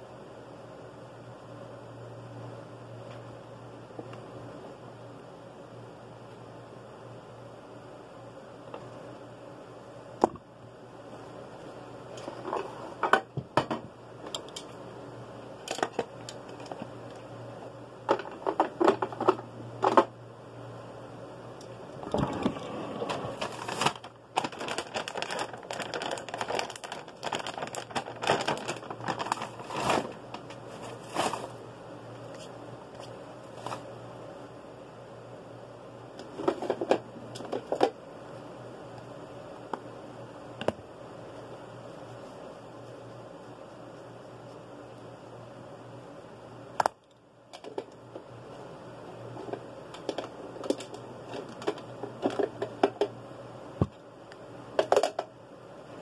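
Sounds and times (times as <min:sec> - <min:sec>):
faint low hum: 0:00.0 - 0:56.0
plastic bag crinkling: 0:22.1 - 0:31.6.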